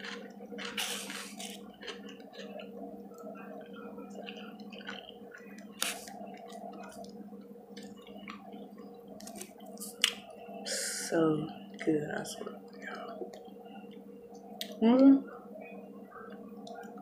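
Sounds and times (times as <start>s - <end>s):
person chewing food: 0.0s - 10.3s
steady low hum: 0.0s - 17.0s.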